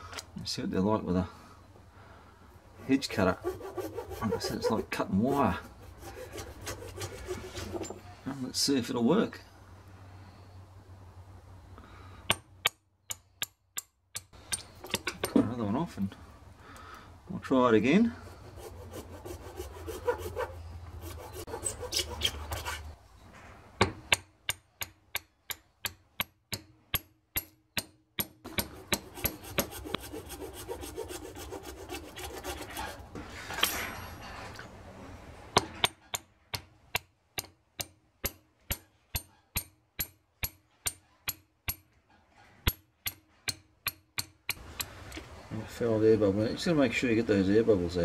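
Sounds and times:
hacksaw blade sawing twig: 0:03.0 - 0:08.0, 0:18.2 - 0:23.0, 0:28.2 - 0:33.6.

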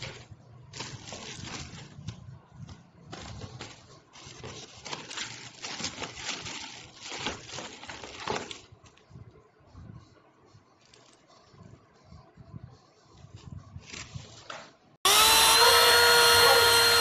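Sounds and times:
packaging rustling and crinkling: 0:00.0 - 0:09.1, 0:13.4 - 0:14.6.

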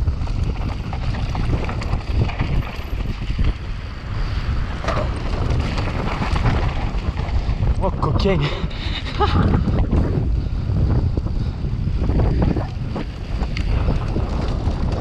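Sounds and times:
bike knocks and rattles: 0:00.0 - 0:03.7, 0:04.6 - 0:07.8, 0:12.2 - 0:15.0
bike tyres on stony dirt: 0:00.0 - 0:15.0
wind buffeting microphone: 0:00.0 - 0:15.0.

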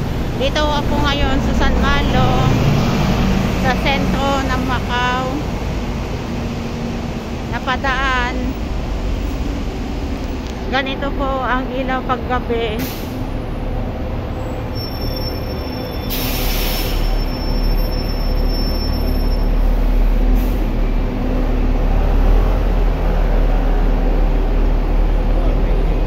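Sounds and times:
bus engine and road rumble: 0:00.0 - 0:26.0
thin high squeal: 0:14.7 - 0:19.8
air hiss: 0:16.1 - 0:17.2.

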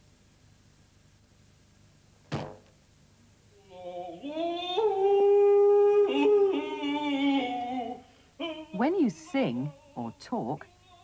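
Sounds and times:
plucked wire twang: 0:02.3 - 0:02.8.

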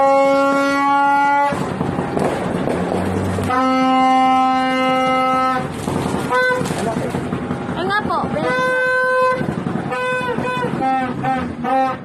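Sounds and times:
horn blasts: 0:00.0 - 0:01.8, 0:03.4 - 0:07.2, 0:08.3 - 0:12.0.

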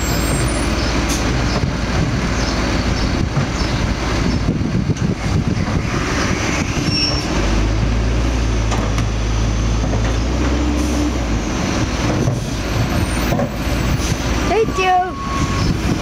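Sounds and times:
garbage truck engine drone: 0:00.0 - 0:16.0.

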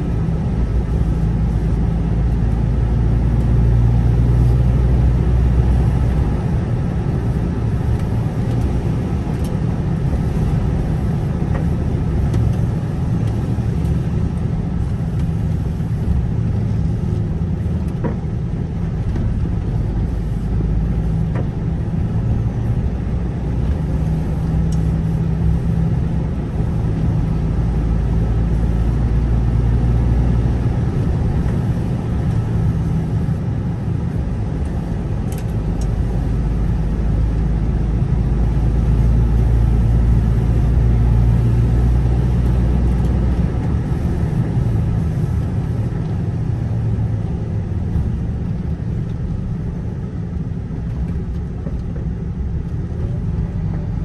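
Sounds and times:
vehicle engine and tyres rumbling: 0:00.0 - 0:54.0.

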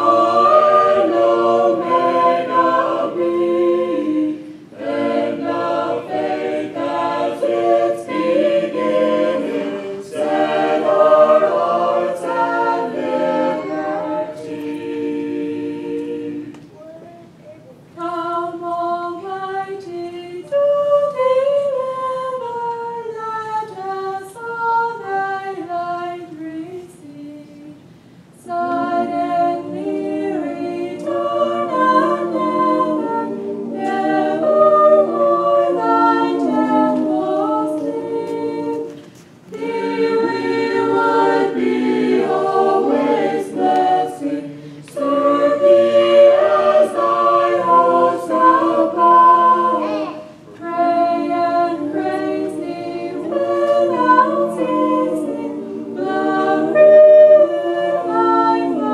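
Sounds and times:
group singing a cappella: 0:00.0 - 0:16.8, 0:18.0 - 0:27.8, 0:28.4 - 0:58.9.

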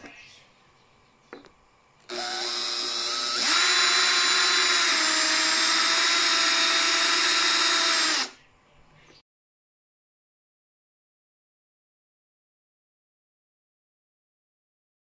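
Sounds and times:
drill cutting through plastic: 0:02.1 - 0:08.4.

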